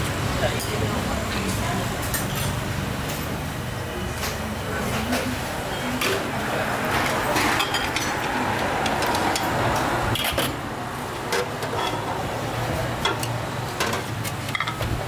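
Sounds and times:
road traffic passing: 0:04.6 - 0:14.8
dishes clinking: 0:06.9 - 0:10.6, 0:11.3 - 0:12.2, 0:13.0 - 0:15.0.

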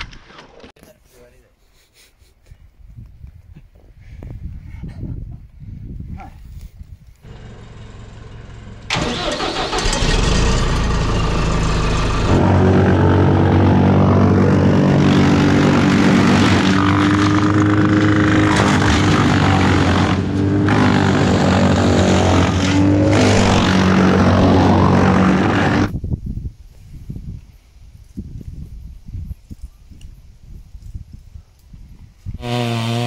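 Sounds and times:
wood chipper chipping branches: 0:08.9 - 0:25.9.

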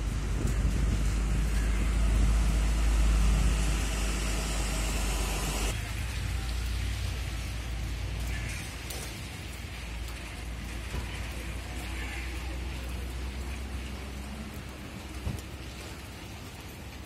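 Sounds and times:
wind rumbling on microphone: 0:00.0 - 0:05.2
stormy weather rushing hiss: 0:00.0 - 0:08.2.

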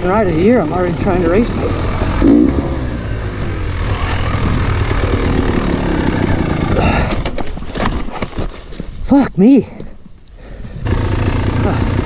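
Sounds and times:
two-stroke dirt bike engine revving: 0:00.0 - 0:07.1, 0:10.8 - 0:12.0.

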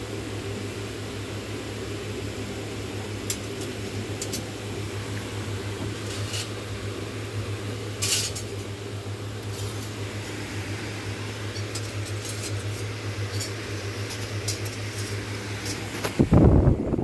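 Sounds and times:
steady low hum: 0:00.0 - 0:17.0
metal discs clinking: 0:03.2 - 0:04.6, 0:05.8 - 0:06.6, 0:08.0 - 0:08.8, 0:09.4 - 0:16.2.

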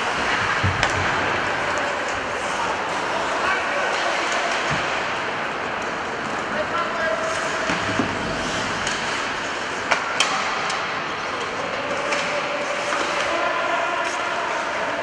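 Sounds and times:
stick clacking puck: 0:07.6 - 0:13.4.

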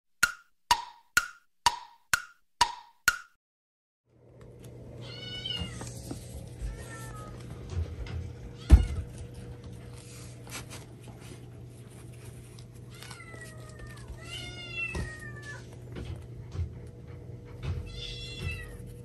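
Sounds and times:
cat meowing: 0:05.0 - 0:05.8, 0:12.9 - 0:15.7, 0:17.8 - 0:18.8.

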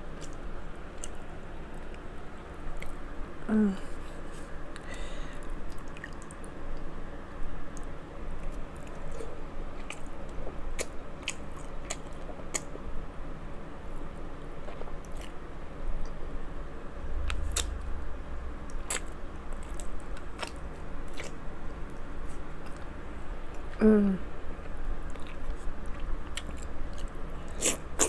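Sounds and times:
low hum: 0:12.9 - 0:26.3
chewing crab legs: 0:18.6 - 0:23.7, 0:24.7 - 0:28.0.

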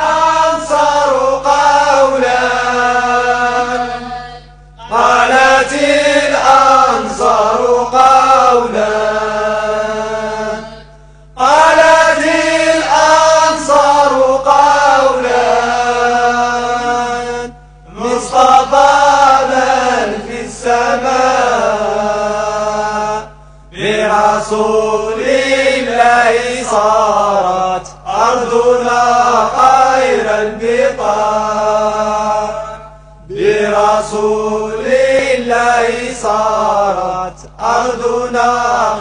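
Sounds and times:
person chanting: 0:00.0 - 0:39.0
steady low hum: 0:00.0 - 0:39.0.

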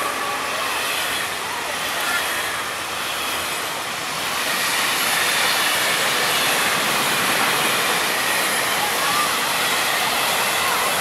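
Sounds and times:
train wheels on rails: 0:00.0 - 0:11.0.

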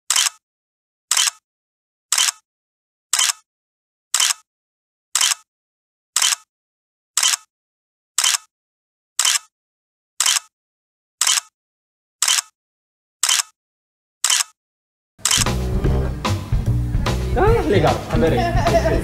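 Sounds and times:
camera shutter clicks: 0:00.1 - 0:00.4, 0:01.1 - 0:01.4, 0:02.1 - 0:02.4, 0:03.2 - 0:03.4, 0:04.2 - 0:04.4, 0:05.2 - 0:05.4, 0:06.2 - 0:06.5, 0:07.2 - 0:07.5, 0:08.2 - 0:08.5, 0:09.2 - 0:09.5, 0:10.2 - 0:10.5, 0:11.2 - 0:11.5, 0:12.2 - 0:12.5, 0:13.2 - 0:13.5, 0:14.2 - 0:14.6, 0:15.2 - 0:15.5.

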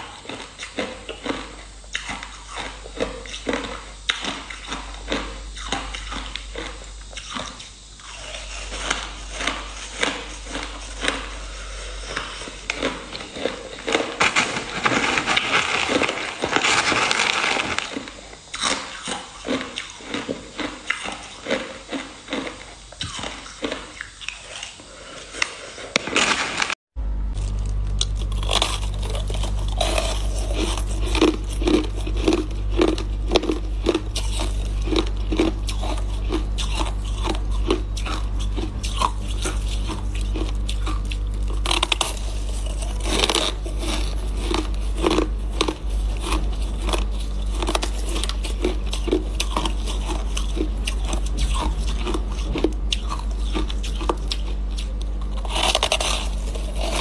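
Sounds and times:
crunching and chewing ice: 0:00.0 - 0:26.7, 0:27.3 - 0:57.0.

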